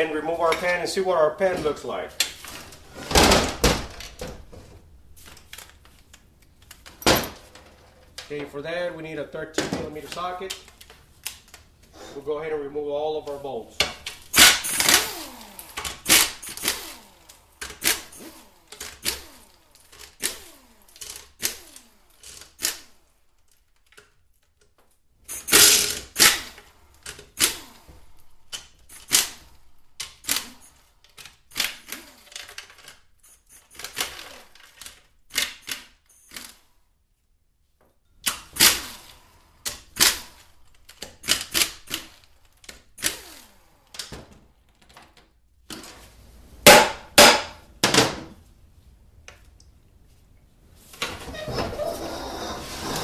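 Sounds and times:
pneumatic air ratchet: 14.1s - 23.0s, 25.2s - 36.7s, 38.2s - 44.1s.

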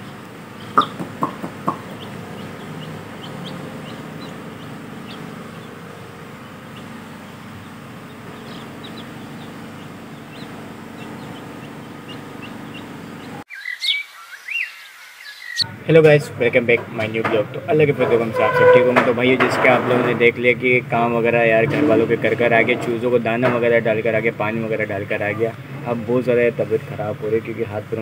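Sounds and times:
loud sharp sounds: 0.0s - 13.4s
chicks peeping: 0.0s - 16.2s.

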